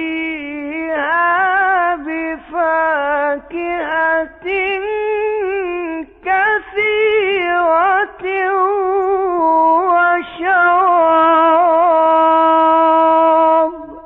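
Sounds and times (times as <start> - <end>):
man reciting melodically: 0.0 - 14.0.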